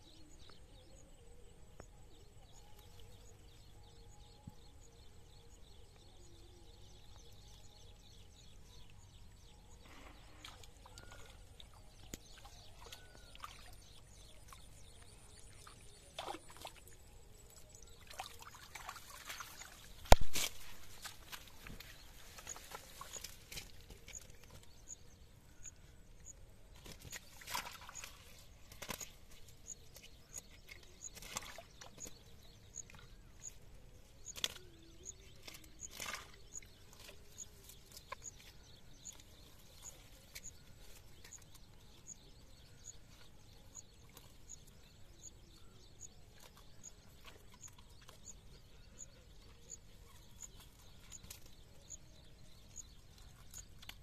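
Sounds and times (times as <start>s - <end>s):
faint high chirp: 9.8s - 33.6s
net rustling against dry grass: 18.1s - 24.6s.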